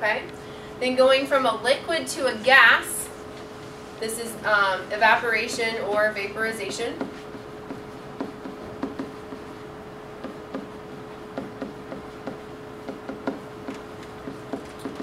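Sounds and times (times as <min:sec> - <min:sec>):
steady hum: 0:00.0 - 0:15.0
marker tapping on whiteboard: 0:06.7 - 0:09.6, 0:10.2 - 0:15.0.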